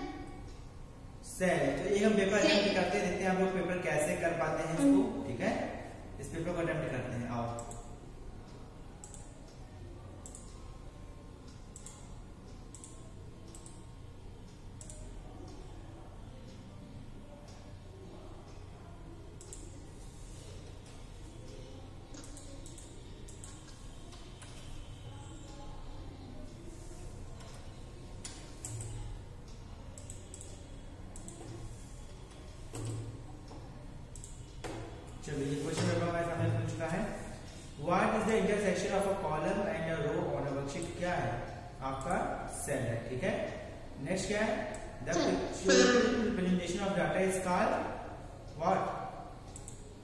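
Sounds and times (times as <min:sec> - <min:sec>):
faint low hum: 0:00.0 - 0:50.0
computer mouse clicking: 0:07.5 - 0:09.6, 0:10.2 - 0:10.8, 0:11.5 - 0:15.7, 0:19.4 - 0:25.7, 0:27.3 - 0:35.0, 0:40.7 - 0:42.3, 0:49.4 - 0:50.0.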